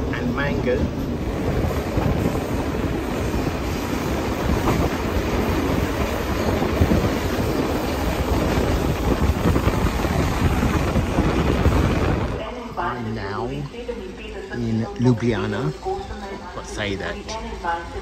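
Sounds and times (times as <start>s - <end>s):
wind buffeting microphone: 0.0s - 12.5s
train wheels rolling on rails: 0.0s - 12.8s.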